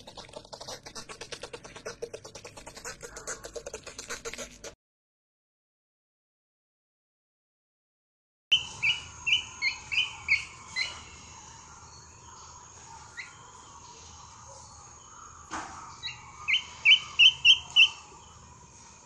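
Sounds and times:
chick peeping: 0:08.5 - 0:11.4, 0:15.5 - 0:18.2.

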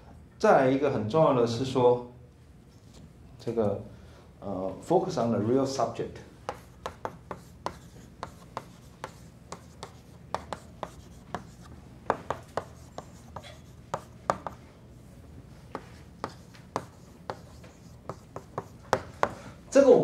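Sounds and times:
chalk tapping on blackboard: 0:06.5 - 0:14.6, 0:15.7 - 0:19.4.

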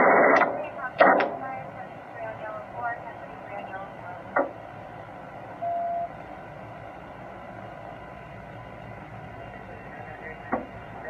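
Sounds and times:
steady low hum: 0:00.0 - 0:11.0
electronic beep: 0:05.6 - 0:06.1.

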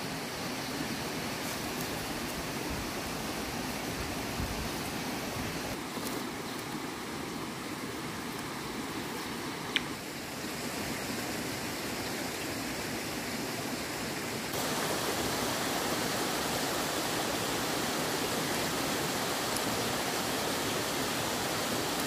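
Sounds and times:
steady rushing noise: 0:14.5 - 0:22.0.

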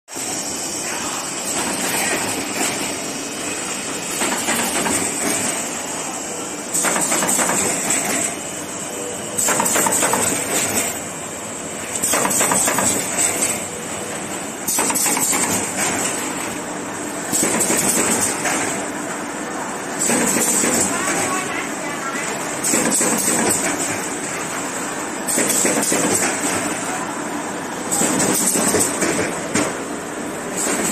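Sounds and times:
rapid machine clicking: 0:04.1 - 0:05.6, 0:06.7 - 0:08.4, 0:09.4 - 0:11.0, 0:12.0 - 0:13.6, 0:14.7 - 0:16.3, 0:17.3 - 0:18.8, 0:22.6 - 0:24.0, 0:25.3 - 0:26.7, 0:27.9 - 0:29.4
machine mechanical din: 0:14.6 - 0:16.3.

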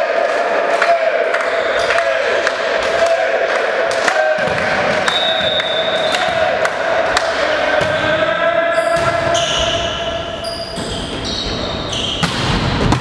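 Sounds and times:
sneakers squeaking on gym floor: 0:05.0 - 0:06.3, 0:07.8 - 0:13.0
volleyball being struck: 0:12.2 - 0:13.0.

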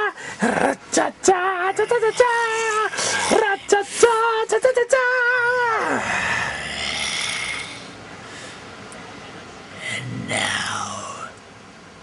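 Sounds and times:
raspy breath: 0:00.1 - 0:00.5, 0:07.6 - 0:08.7.

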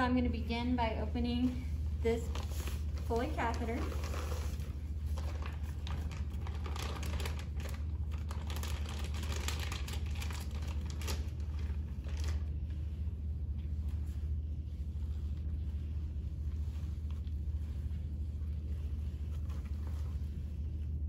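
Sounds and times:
steady low hum: 0:00.0 - 0:21.0
plastic bag crinkling: 0:02.2 - 0:12.8.

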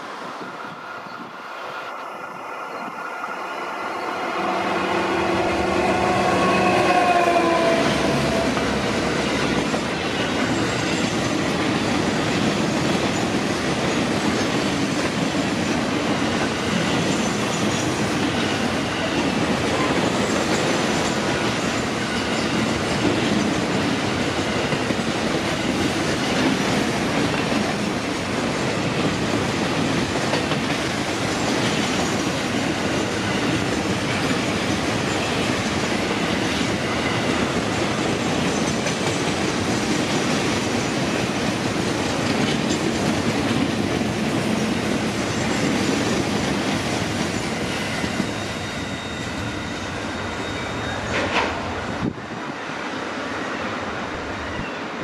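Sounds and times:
diesel locomotive engine passing: 0:00.0 - 0:55.0
train wheels on rails: 0:00.0 - 0:55.0.

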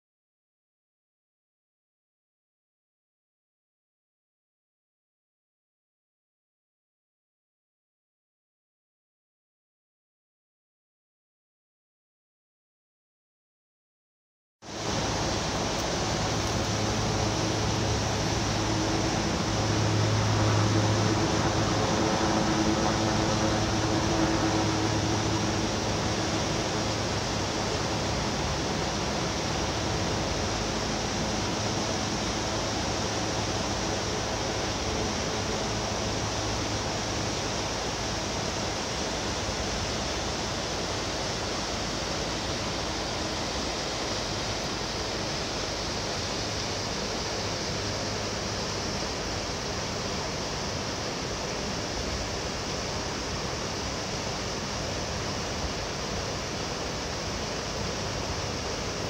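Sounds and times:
low mechanical hum: 0:14.7 - 0:59.0
water rushing at dam: 0:14.7 - 0:59.0.

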